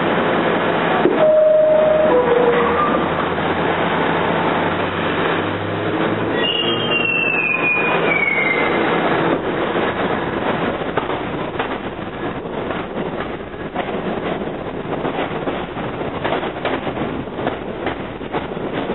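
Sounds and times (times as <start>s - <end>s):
subway train rumbling on rails: 0.0s - 18.9s
high steel-wheel squeal: 1.2s - 3.2s, 6.3s - 8.8s.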